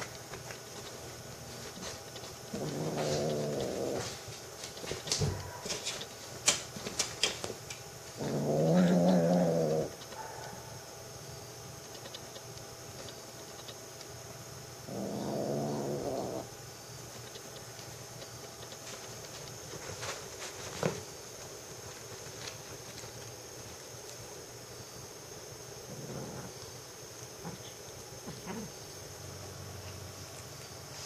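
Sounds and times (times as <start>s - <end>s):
sharp clicks: 11.8s - 14.1s.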